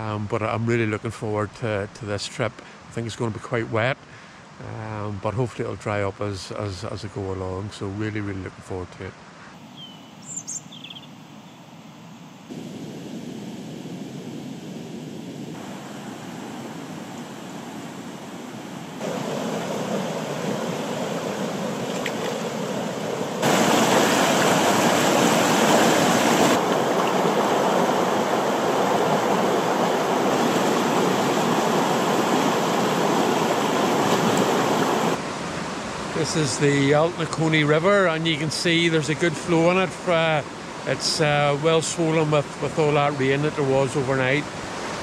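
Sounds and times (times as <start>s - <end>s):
river rushing over rocks: 18.9s - 36.0s.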